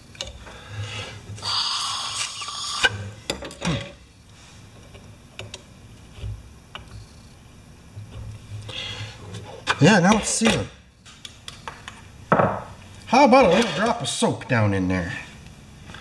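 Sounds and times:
air rushing hiss: 0.7s - 3.0s.

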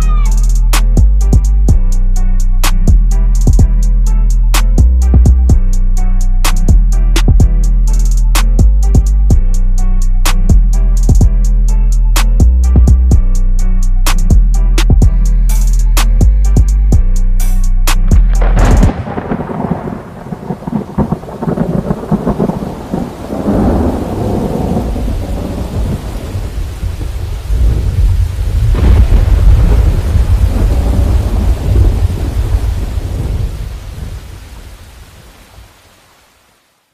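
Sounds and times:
rain hissing: 17.4s - 36.9s
sharp thunderclap: 18.1s - 34.2s
low rolling thunder: 18.2s - 34.7s.

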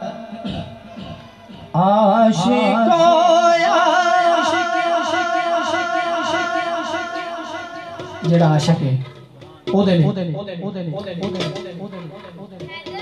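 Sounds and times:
man singing unaccompanied: 1.6s - 8.7s.

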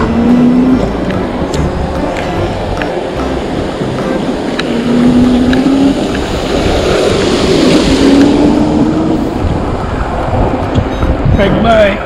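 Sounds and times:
low motor hum rising in pitch: 0.0s - 11.0s
wind rushing on microphone: 0.0s - 12.0s
tyre hiss on wet pavement: 5.2s - 9.6s.

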